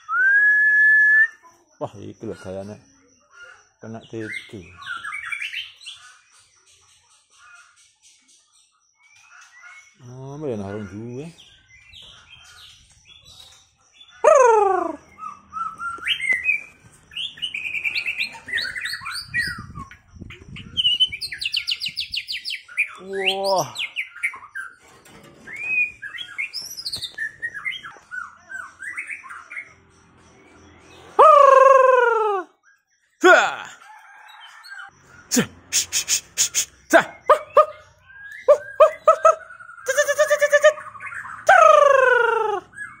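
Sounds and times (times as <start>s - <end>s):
bird singing whistled song: 0.0s - 1.5s, 12.8s - 24.8s, 25.5s - 29.8s, 35.7s - 41.8s, 42.6s - 43.0s.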